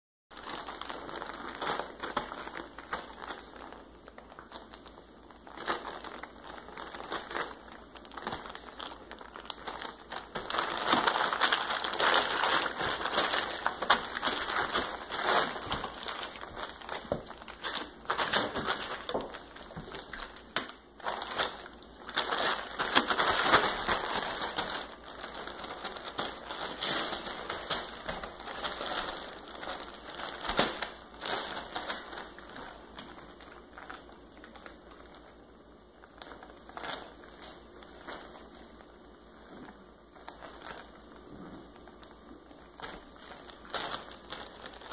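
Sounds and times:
plastic tarp crinkling: 0.4s - 35.4s, 36.0s - 44.9s
puppies scuffling: 5.5s - 35.2s.

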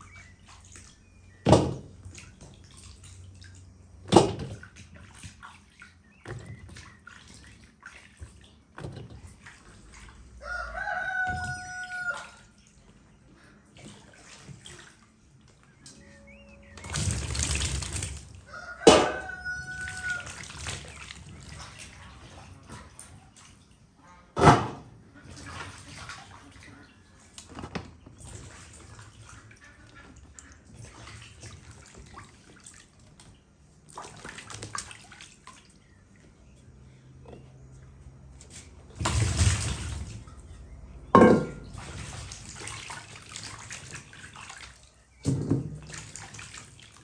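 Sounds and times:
water sloshing and dripping: 0.0s - 47.0s
fruit splashing into water: 16.8s - 22.5s, 33.9s - 35.7s, 38.9s - 40.4s, 41.2s - 47.0s
sharp knocks on metal basin: 18.9s - 19.2s, 41.2s - 41.7s.

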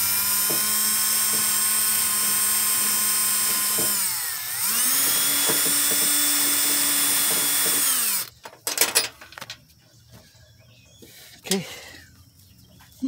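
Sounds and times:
cordless drill wire brush spinning: 0.0s - 8.4s
tools clicking and knocking: 5.0s - 9.6s.

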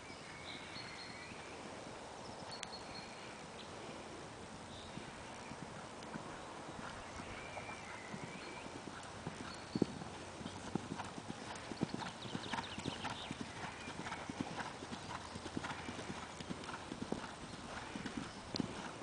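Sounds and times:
horse hooves cantering on sand: 4.8s - 19.0s.

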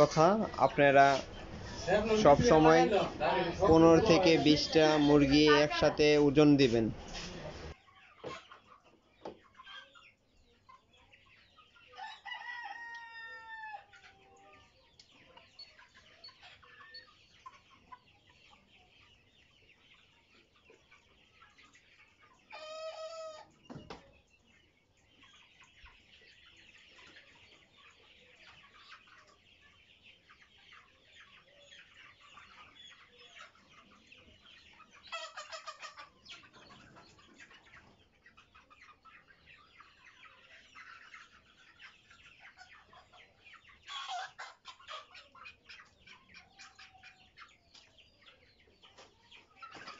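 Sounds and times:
chickens clucking and chirping: 0.0s - 49.9s
young roosters crowing: 12.0s - 14.0s.

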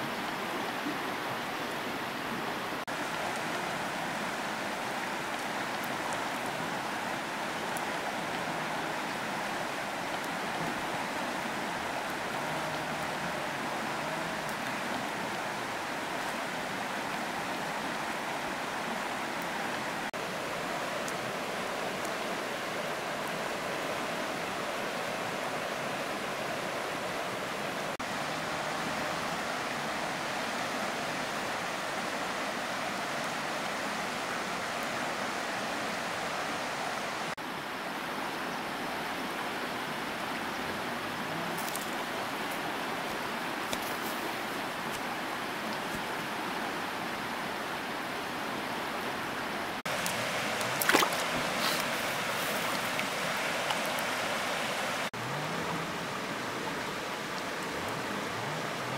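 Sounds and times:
water rushing: 0.0s - 58.9s.

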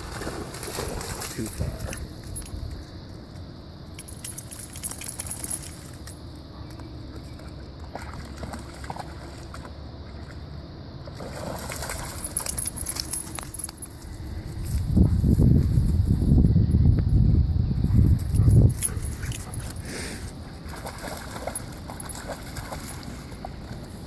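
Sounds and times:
dog splashing through water: 0.0s - 2.1s, 7.3s - 10.5s, 11.1s - 13.6s, 20.4s - 23.9s
collar tags jingling: 1.2s - 3.0s, 3.8s - 7.1s, 11.7s - 15.8s, 18.0s - 24.0s.

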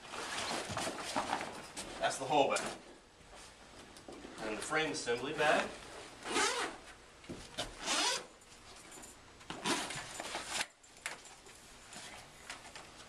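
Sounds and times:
zipper being pulled open: 6.2s - 6.8s, 7.6s - 8.3s, 9.5s - 10.7s.

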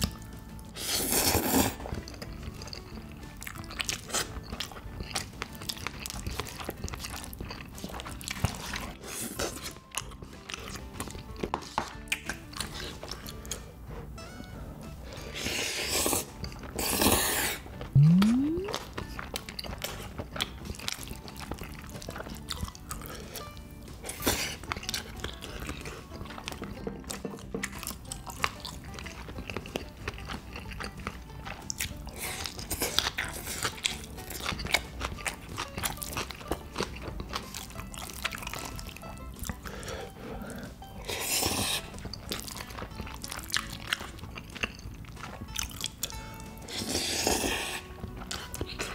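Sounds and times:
wet chewing and mouth clicks: 0.0s - 14.2s, 14.8s - 48.9s
noodle slurping: 0.7s - 9.8s, 15.2s - 19.2s, 39.5s - 42.5s, 46.6s - 48.9s
short rising tone: 18.0s - 18.8s.

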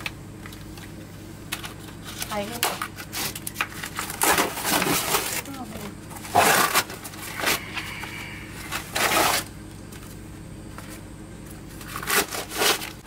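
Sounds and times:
cardboard tearing: 2.1s - 5.6s, 6.2s - 7.7s, 8.7s - 9.5s, 11.8s - 13.0s.

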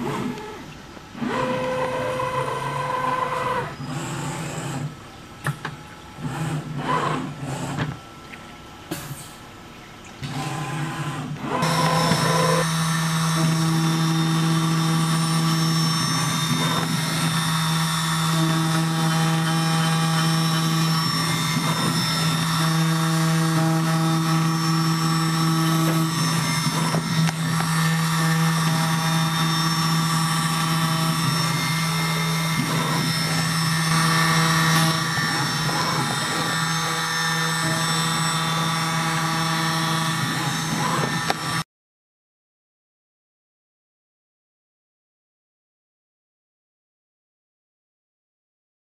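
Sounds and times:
milling machine spindle hum: 0.0s - 8.9s, 9.5s - 41.6s
high cutter tone: 10.2s - 41.6s.

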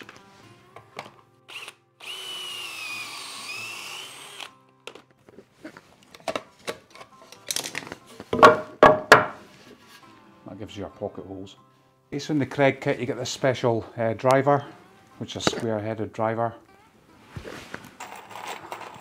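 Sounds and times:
cordless drill whining: 1.5s - 4.6s.

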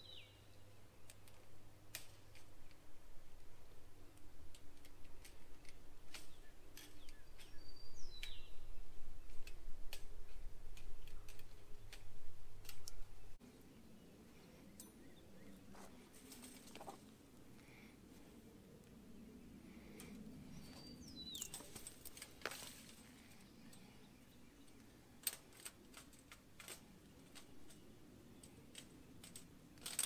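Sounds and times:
bird chirping: 0.0s - 1.3s, 6.2s - 9.6s, 12.8s - 16.0s, 19.1s - 22.3s
fence wire clicks and scrapes: 1.0s - 2.8s, 4.1s - 7.6s, 9.2s - 13.2s, 15.7s - 17.1s, 19.8s - 23.9s, 24.6s - 30.0s.

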